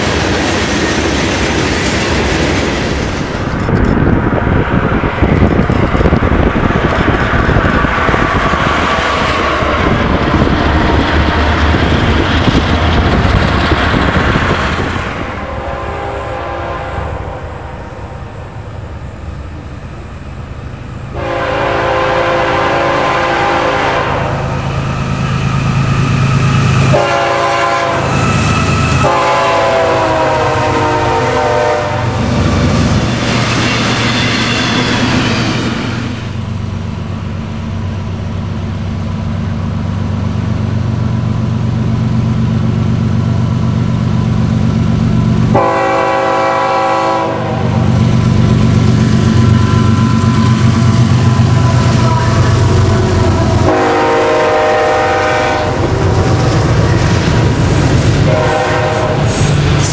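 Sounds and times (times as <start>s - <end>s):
diesel locomotives droning: 0.0s - 59.9s
train passing with wheel noise: 0.0s - 59.9s
train air horn blasts: 15.2s - 18.2s, 21.1s - 32.2s, 45.5s - 47.9s, 49.5s - 55.8s, 58.2s - 59.6s.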